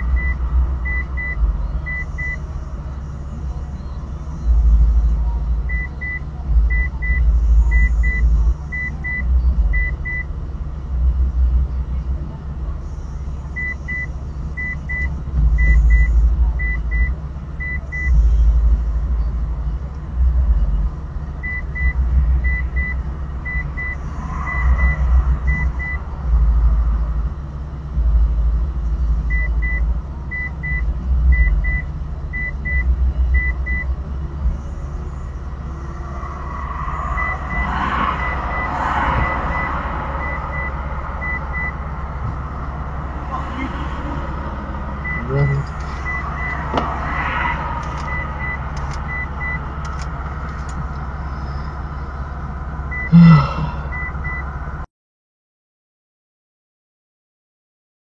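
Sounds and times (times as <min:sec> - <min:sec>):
car engine idling rumble: 0:00.0 - 0:54.9
high double beeps: 0:36.5 - 0:41.8.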